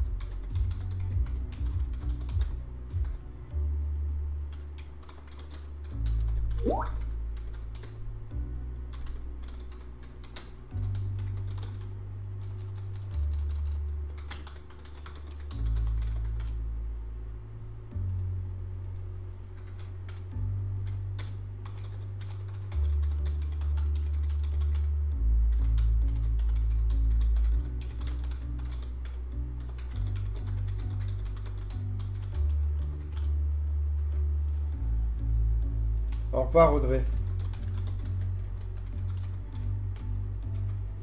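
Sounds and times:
background music with bass: 0.0s - 5.0s, 5.6s - 41.0s
typing on computer keyboard: 0.2s - 3.1s, 4.5s - 8.0s, 8.9s - 16.6s, 19.6s - 20.2s, 20.8s - 24.9s, 25.5s - 33.3s, 37.1s - 39.7s.

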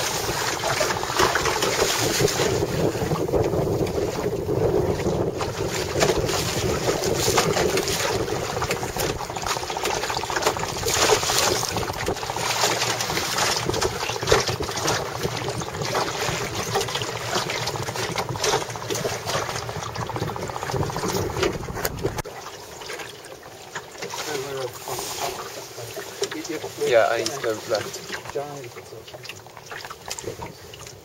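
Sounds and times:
wind on microphone: 0.0s - 22.2s
water splashing against a hull: 0.0s - 31.0s.

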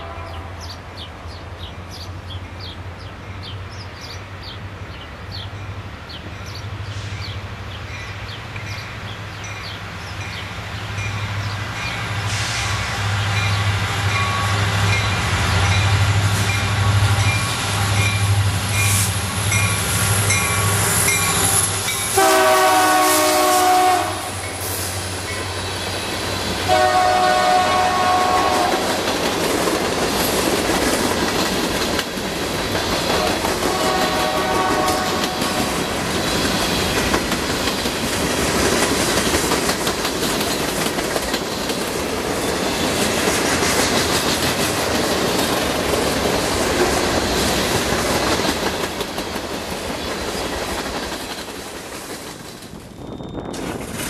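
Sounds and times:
train horn blasts: 0.0s - 0.7s, 20.3s - 24.7s, 26.6s - 29.0s, 33.1s - 35.8s
diesel locomotive engines running: 0.0s - 54.0s.

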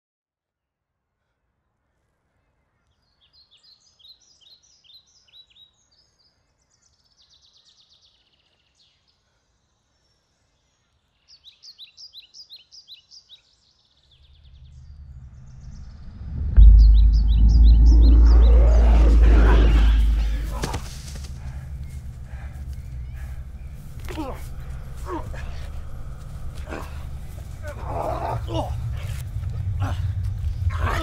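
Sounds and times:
songbirds chirping: 1.6s - 31.0s
low rumble and deep boom: 14.4s - 31.0s.

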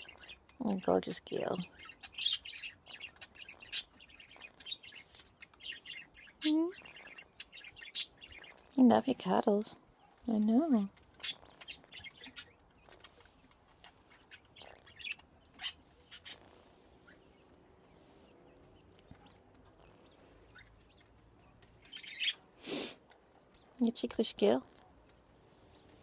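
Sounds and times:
parrot soft chirps and clicks: 9.8s - 17.6s.

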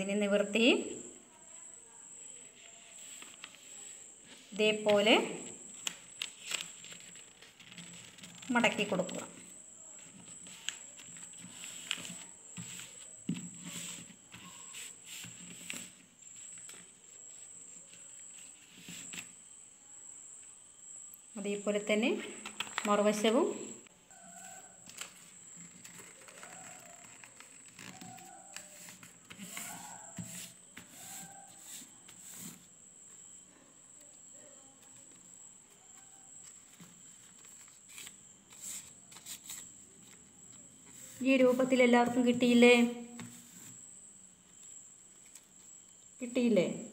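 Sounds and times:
paper rustling and scraping: 2.6s - 5.0s, 5.8s - 19.4s, 24.2s - 32.7s, 35.9s - 41.8s.

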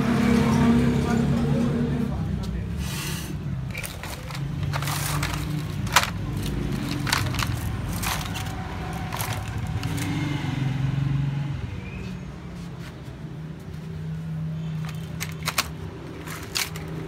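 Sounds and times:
sharp clicks and clacks: 14.8s - 17.0s.

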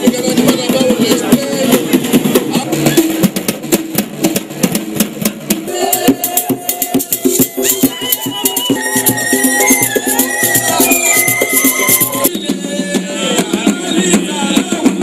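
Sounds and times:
drums and rattle rhythm: 0.0s - 15.0s
held melodic notes: 7.1s - 12.3s.

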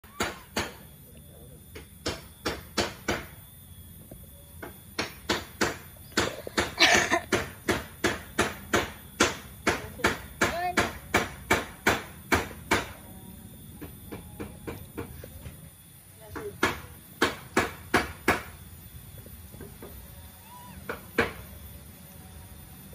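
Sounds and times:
sharp knocks: 0.0s - 0.8s, 1.7s - 3.4s, 4.6s - 13.0s, 16.3s - 18.6s, 20.9s - 21.4s.

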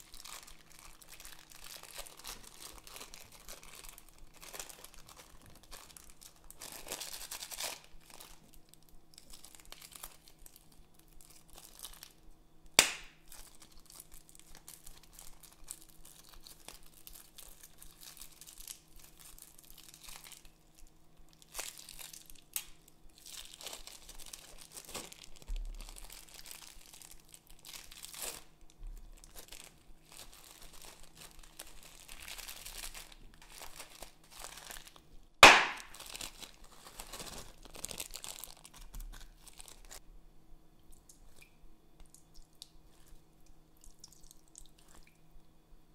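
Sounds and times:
plastic bags crinkling: 0.0s - 12.2s, 12.8s - 40.0s
sharp plastic snaps: 12.8s - 13.2s, 35.4s - 35.9s.

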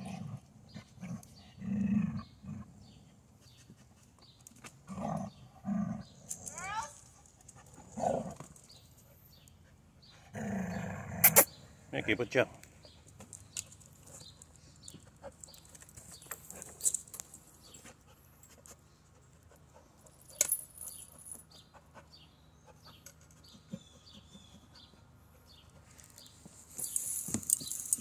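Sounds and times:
jingling and scraping: 12.8s - 19.4s, 20.0s - 21.7s, 25.9s - 28.0s.

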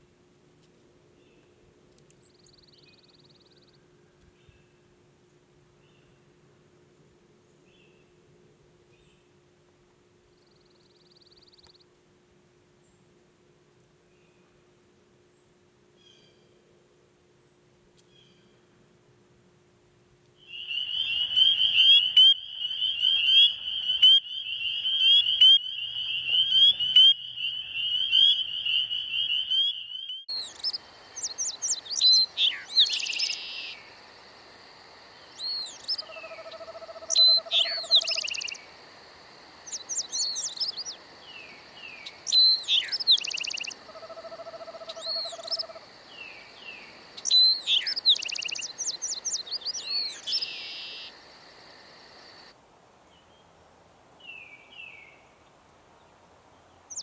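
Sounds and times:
spring peepers chorus: 20.4s - 52.5s
bird whistles and trills: 20.6s - 33.8s, 42.0s - 43.8s, 47.2s - 51.1s.

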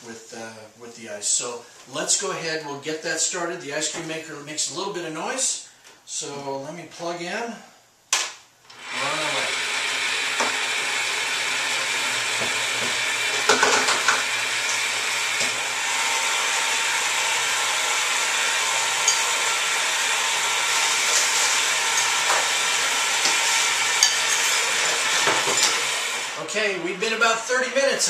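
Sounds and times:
ice cream maker motor humming: 8.7s - 26.4s.

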